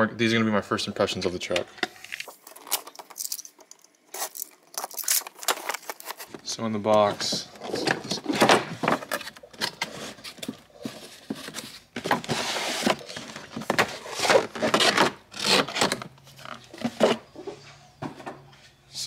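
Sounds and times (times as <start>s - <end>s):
cardboard box rustling and scraping: 7.1s - 17.4s.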